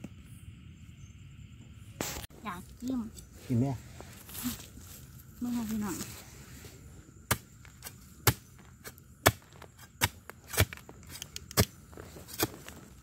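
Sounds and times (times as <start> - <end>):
metal tool striking stony soil: 7.3 - 13.0.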